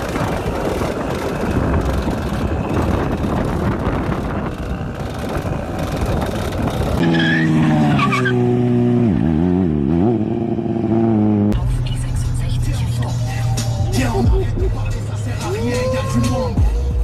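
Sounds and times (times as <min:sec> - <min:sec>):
sportbike engine revving: 0:00.0 - 0:11.6
rough motorcycle engine: 0:00.0 - 0:15.5
wind: 0:00.0 - 0:17.0.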